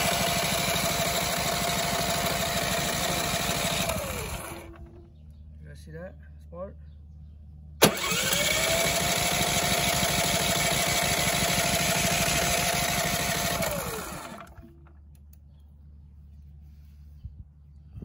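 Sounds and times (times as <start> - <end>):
generator engine cranking: 0.0 - 5.1, 7.8 - 15.0.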